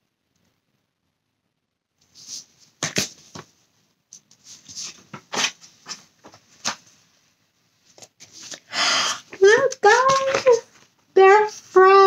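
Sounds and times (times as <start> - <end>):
paper pages rustling: 2.0 - 7.0, 9.4 - 12.0.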